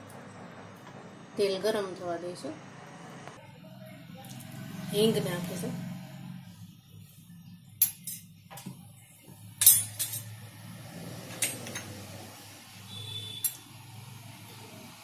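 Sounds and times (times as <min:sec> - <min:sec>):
metal utensils and dishes clinking: 0:07.8 - 0:08.7, 0:09.6 - 0:10.5, 0:11.2 - 0:12.1.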